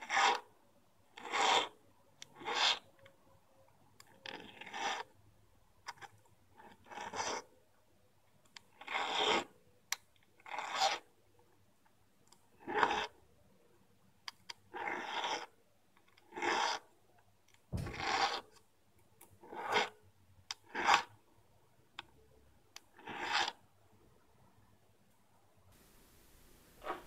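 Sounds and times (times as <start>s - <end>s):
needle file rasping on metal: 0.0s - 0.4s, 1.2s - 2.9s.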